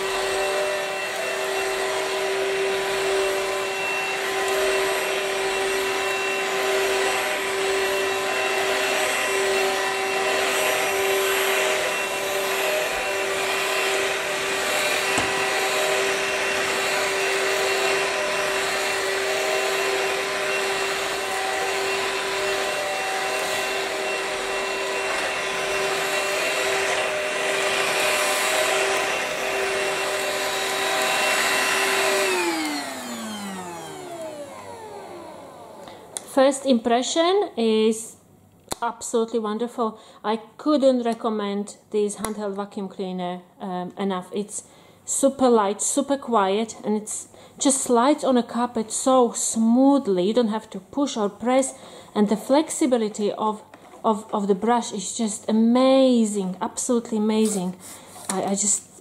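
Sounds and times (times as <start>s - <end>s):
vacuum cleaner motor whine: 0.0s - 36.4s.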